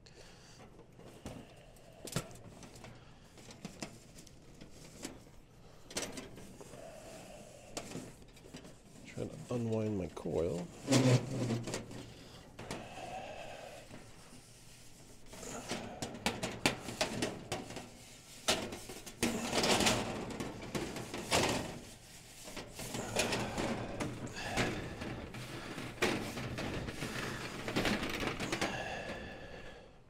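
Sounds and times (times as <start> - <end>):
copper tubing clicking and scraping: 0.5 - 29.2.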